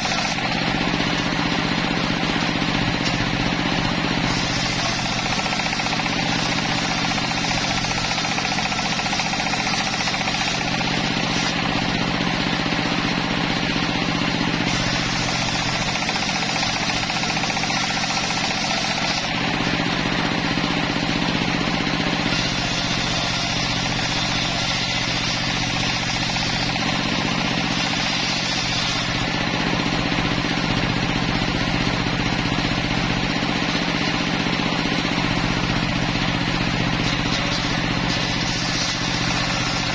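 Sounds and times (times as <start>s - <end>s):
circular saw ripping wooden planks: 0.0s - 12.9s, 14.2s - 20.5s, 22.0s - 29.9s, 36.8s - 39.9s.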